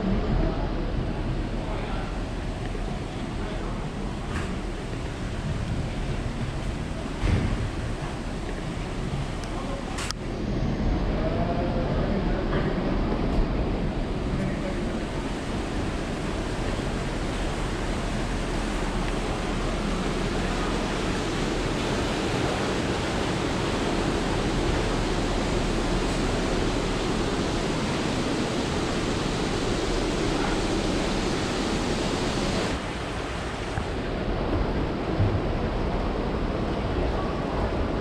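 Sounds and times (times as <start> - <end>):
rushing wind: 0.0 - 38.0.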